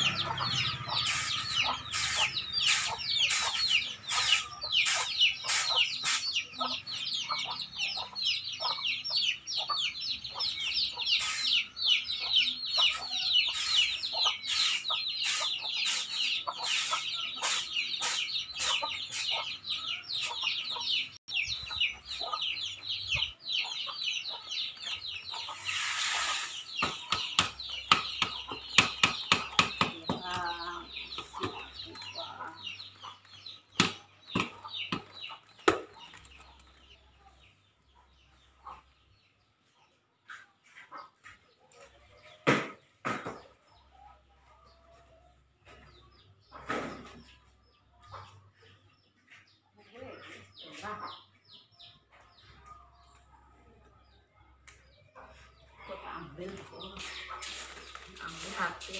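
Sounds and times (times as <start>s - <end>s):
hen clucking: 0.0s - 42.4s
chicks peeping: 0.0s - 58.9s.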